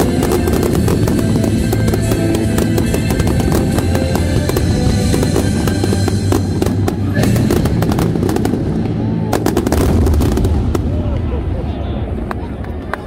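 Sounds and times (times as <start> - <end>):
loud music with drum beat: 0.0 - 8.6
sharp bangs: 0.0 - 11.2
fireworks bursting: 0.0 - 11.7.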